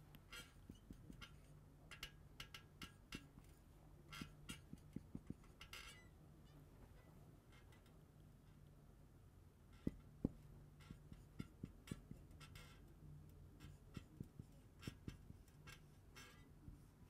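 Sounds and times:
marker writing on whiteboard: 0.2s - 6.0s, 9.8s - 17.0s.

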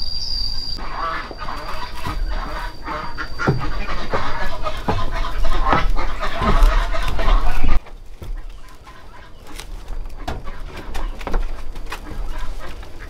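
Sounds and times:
chickens clucking: 0.8s - 13.0s
short knocks: 3.1s - 12.4s.

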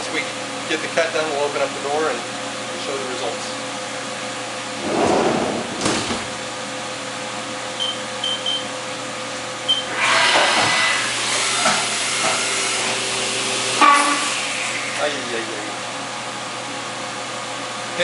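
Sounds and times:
machine doors knocking shut: 5.1s - 6.4s.

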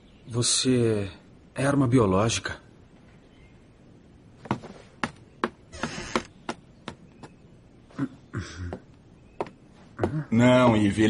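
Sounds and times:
footsteps on wooden floor: 4.4s - 7.4s.

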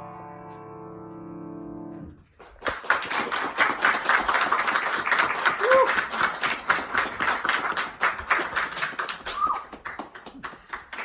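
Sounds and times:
group applauding: 2.4s - 11.0s.

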